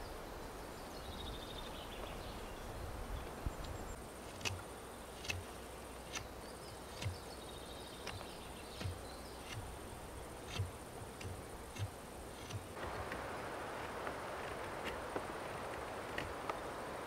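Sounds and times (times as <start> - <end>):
high insect buzz: 3.8 - 17.0
knife carving a stick: 4.2 - 7.2, 8.0 - 12.8.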